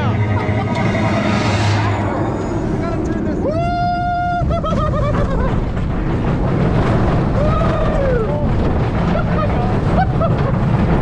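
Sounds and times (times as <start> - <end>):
roller coaster rumbling on track: 0.0 - 11.0.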